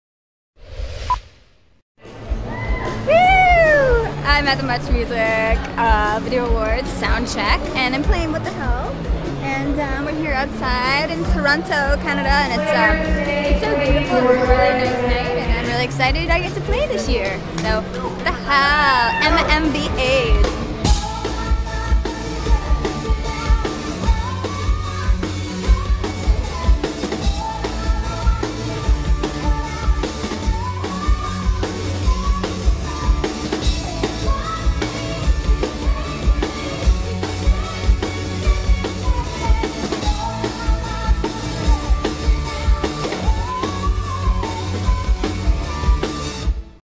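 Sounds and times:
bass guitar: 0:02.0 - 0:46.8
drum kit beat: 0:10.2 - 0:46.8
woman singing: 0:10.4 - 0:15.9, 0:18.3 - 0:46.4.

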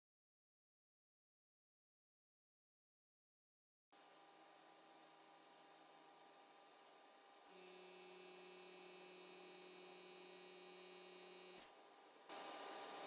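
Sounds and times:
faint electrical hum: 0:04.0 - 0:13.0.

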